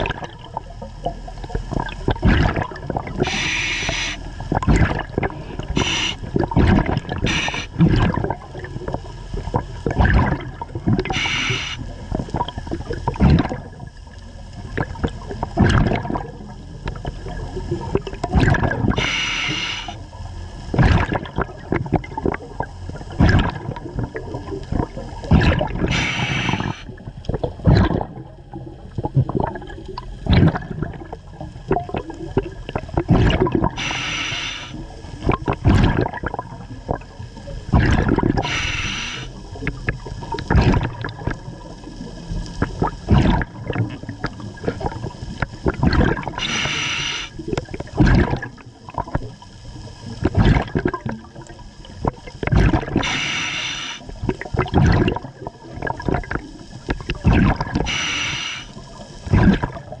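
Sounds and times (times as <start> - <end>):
exhaled bubbles gurgling: 0.0 - 60.0
regulator hiss on inhale: 3.2 - 4.4, 5.4 - 6.3, 7.2 - 7.8, 11.1 - 12.0, 18.9 - 20.0, 25.9 - 26.9, 33.8 - 35.0, 38.4 - 39.5, 46.4 - 47.4, 53.0 - 54.2, 57.8 - 59.1.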